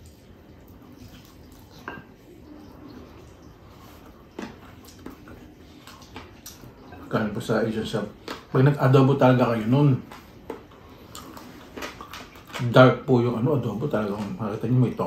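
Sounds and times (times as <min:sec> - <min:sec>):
person chewing: 0:00.8 - 0:07.1, 0:08.1 - 0:08.6, 0:10.0 - 0:12.6.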